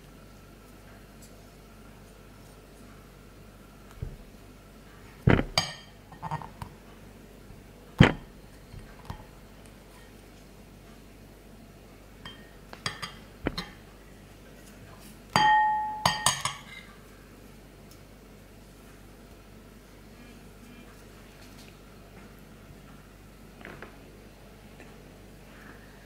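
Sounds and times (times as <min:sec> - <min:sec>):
metal spoon clinking ceramic bowl: 0:12.2 - 0:13.8, 0:15.4 - 0:16.9.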